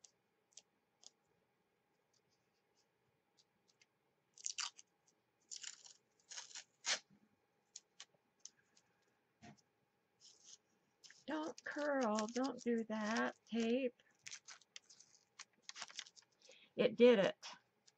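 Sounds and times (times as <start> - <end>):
masking tape ripping off roll: 5.5 - 7.1, 11.1 - 16.2.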